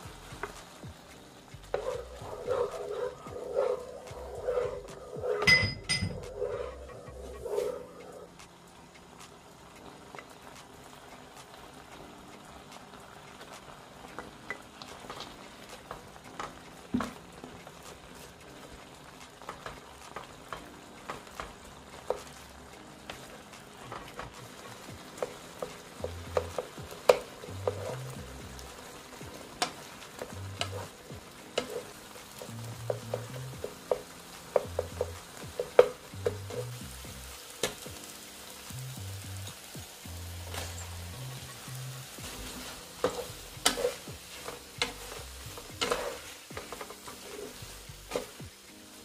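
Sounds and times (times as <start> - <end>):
sauce sizzling in a skillet: 0.0 - 49.0
spatula knocking and scraping pan: 1.6 - 7.9, 14.2 - 17.2, 19.4 - 38.1, 40.4 - 48.6.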